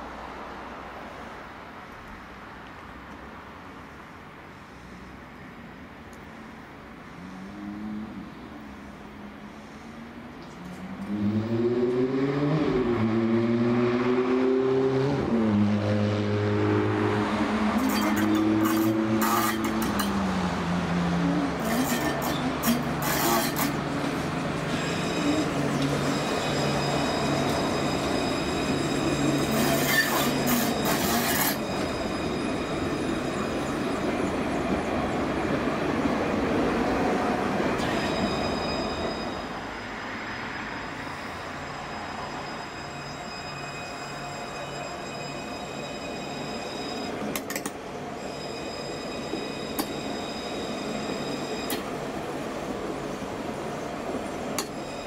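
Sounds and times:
tram wheels running on rails: 17.3s - 55.0s
thin high whine: 21.6s - 34.5s, 37.8s - 47.4s, 48.0s - 52.0s, 53.1s - 55.0s.

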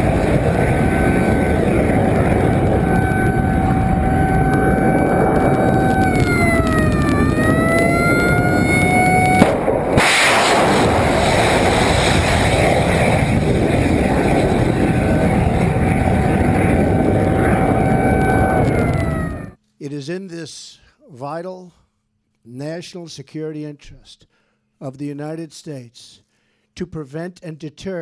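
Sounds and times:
missile launch roar: 0.0s - 19.6s
whining tone: 0.0s - 19.6s.

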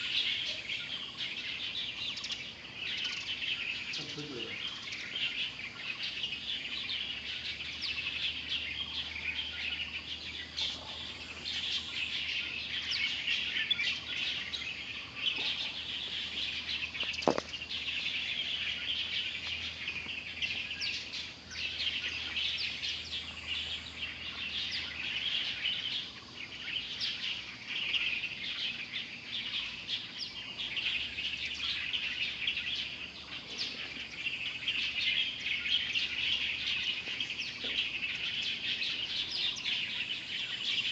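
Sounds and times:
birds chirping and twittering: 0.0s - 40.9s
brief knock: 17.2s - 17.5s.

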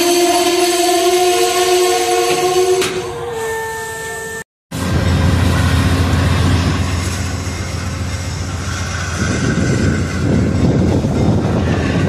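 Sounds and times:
diesel locomotive humming: 0.0s - 12.0s
train cars rolling on rails: 4.8s - 12.0s.

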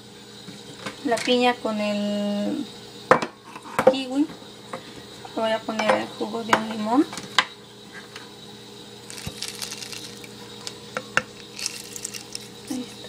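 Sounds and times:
juice poured into blender jar: 9.1s - 10.3s, 11.4s - 12.9s
wet squishing of lime on juicer: 9.1s - 13.0s.

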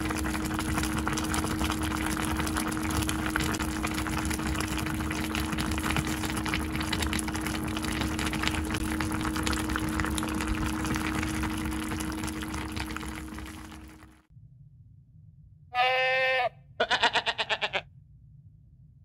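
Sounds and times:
stew bubbling and crackling: 0.0s - 14.3s
steady low hum: 0.0s - 15.7s.

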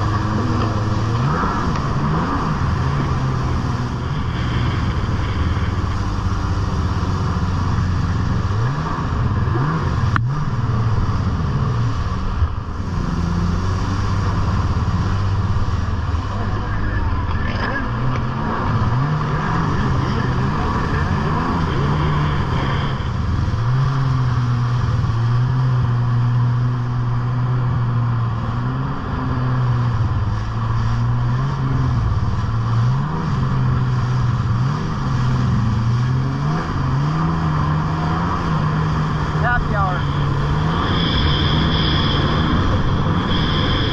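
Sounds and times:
jet ski engine revving: 0.0s - 43.9s
wind rush: 0.0s - 43.9s
water spray: 17.8s - 43.9s.

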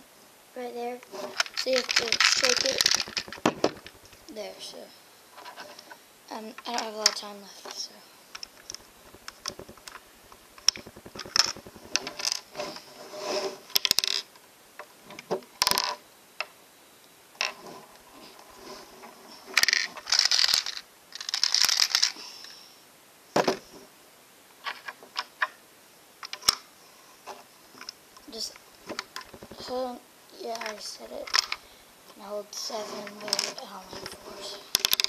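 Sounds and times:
plastic bricks clicking and rattling: 1.3s - 4.2s, 8.4s - 10.0s, 10.6s - 12.5s, 13.7s - 14.3s, 15.6s - 16.0s, 19.6s - 22.2s, 28.8s - 29.8s, 30.5s - 31.6s, 33.0s - 35.0s.

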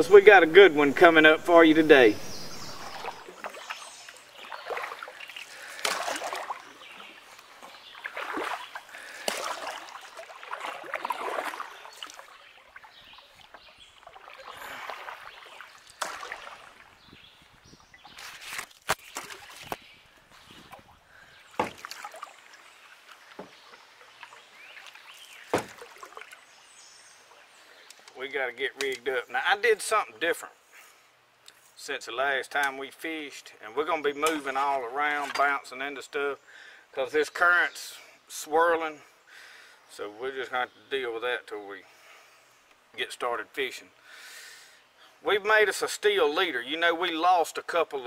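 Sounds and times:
paddle splashing through water: 0.0s - 27.6s
sharp knocks: 25.5s - 25.8s.

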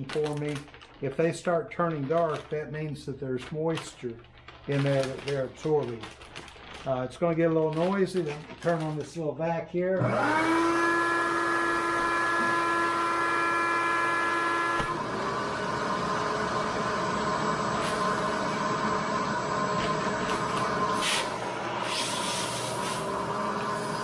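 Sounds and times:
hissy plastic bag rustles: 0.0s - 9.4s
shop vacuum whining: 10.0s - 24.0s.

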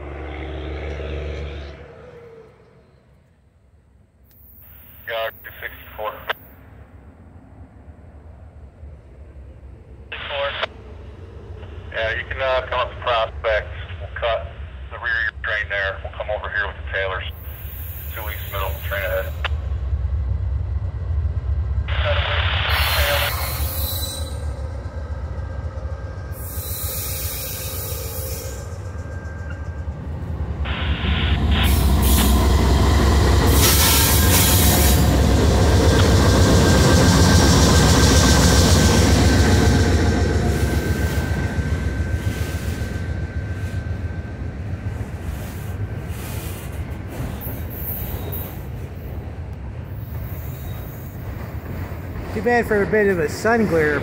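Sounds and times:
train locomotive rumble: 0.0s - 54.0s
train wheel squeal: 17.4s - 19.3s, 22.7s - 25.0s, 26.0s - 30.0s, 33.4s - 35.1s, 40.5s - 43.8s, 45.2s - 48.8s, 49.9s - 51.7s.

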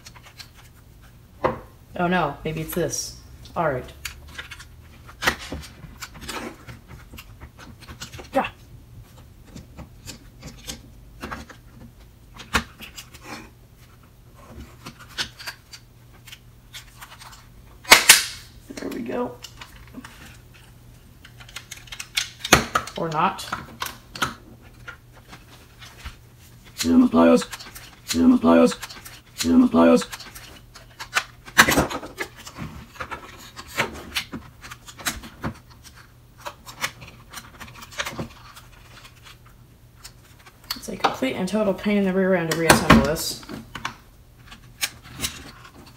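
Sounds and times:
plastic parts clicking: 14.8s - 26.1s.

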